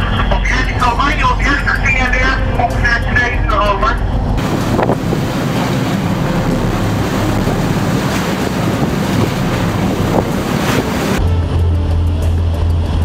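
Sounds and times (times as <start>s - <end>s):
low engine drone: 0.0s - 13.0s
wind buffeting microphone: 4.1s - 11.2s
rushing waves and spray: 4.2s - 11.3s.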